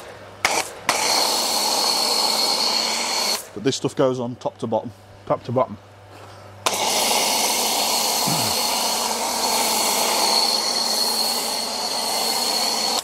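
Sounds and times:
pressure washer spraying hiss: 6.7 - 13.0.

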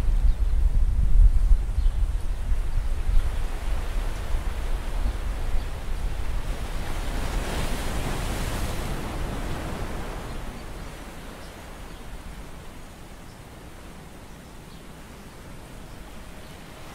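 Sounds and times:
wind buffeting microphone: 0.0 - 12.6
sea waves washing: 2.4 - 14.2.

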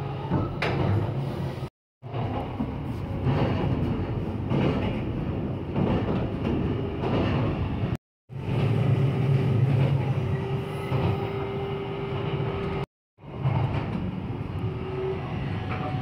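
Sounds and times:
train wheels rumbling on rails: 0.2 - 16.0.

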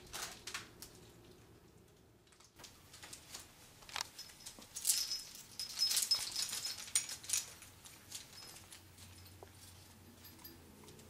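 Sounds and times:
plastic toy parts rattling: 3.0 - 8.8.

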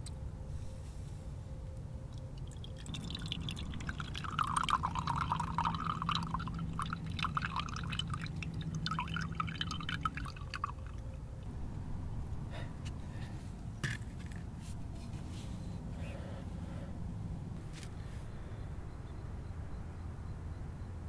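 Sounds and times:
juice trickling into a bowl: 2.2 - 11.1.

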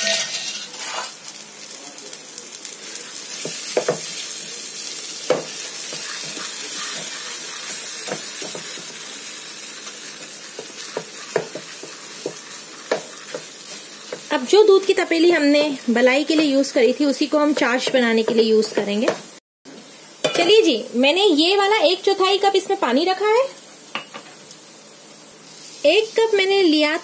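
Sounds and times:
metal spoon scraping a pan: 0.0 - 1.2, 5.6 - 8.9, 10.2 - 14.3
food sizzling in a pan: 0.0 - 27.0.

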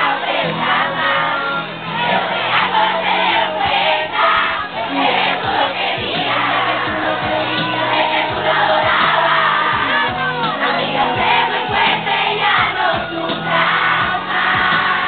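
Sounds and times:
crowd chanting: 0.0 - 15.0.

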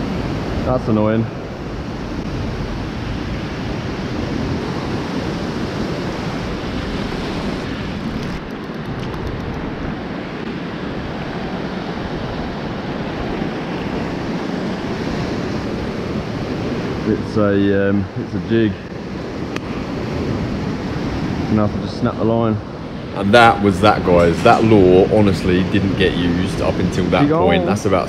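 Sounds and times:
ocean surf over rocks: 0.0 - 28.0
wind buffeting microphone: 0.0 - 28.0.

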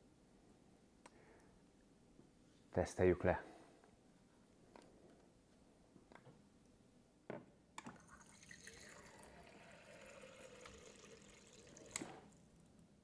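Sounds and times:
water stream filling reservoir: 8.0 - 12.5.

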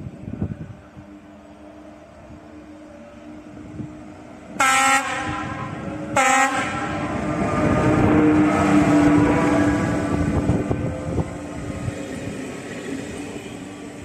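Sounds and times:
train running noise: 0.0 - 14.0
train horn blasts: 4.5 - 10.2.

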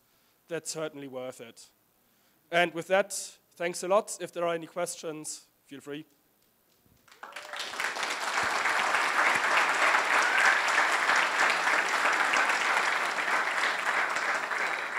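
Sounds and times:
audience applauding: 7.0 - 14.9.

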